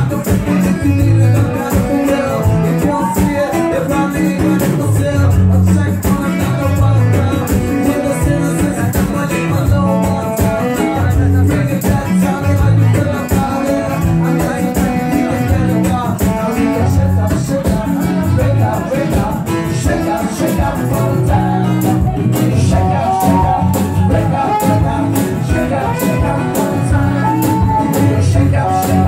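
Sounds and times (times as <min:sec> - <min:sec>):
acoustic guitar: 0:00.0 - 0:29.0
low bass notes: 0:00.0 - 0:29.0
saxophone: 0:00.0 - 0:29.0.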